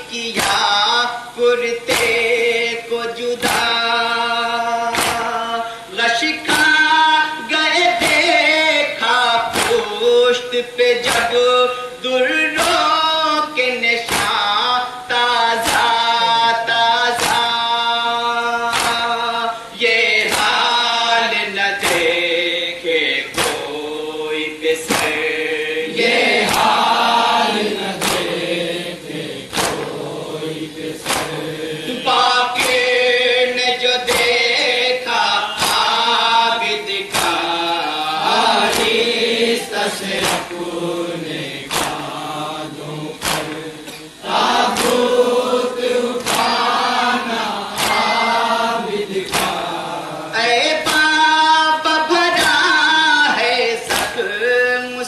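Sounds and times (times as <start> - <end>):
men chanting a lament: 0.0 - 55.0
hands slapping chests: 1.9 - 2.2, 4.9 - 5.3, 9.5 - 10.0, 14.1 - 14.5, 15.6 - 16.0, 17.1 - 17.6, 18.7 - 19.1, 20.2 - 20.6, 21.8 - 22.2, 23.3 - 23.9, 24.8 - 25.4, 26.0 - 27.2, 27.9 - 28.5, 29.4 - 32.0, 32.6 - 33.0, 34.1 - 34.4, 35.6 - 36.0, 37.1 - 37.6, 38.2 - 39.2, 40.1 - 40.7, 41.6 - 42.3, 43.2 - 45.3, 46.2 - 46.9, 47.7 - 49.8, 53.9 - 54.2.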